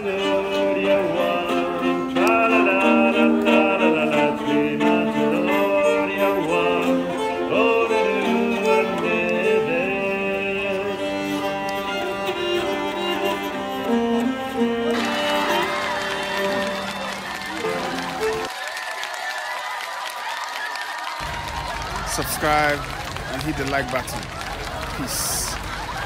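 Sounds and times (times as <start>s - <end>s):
keyed fiddle bowed melody: 0.0s - 18.5s.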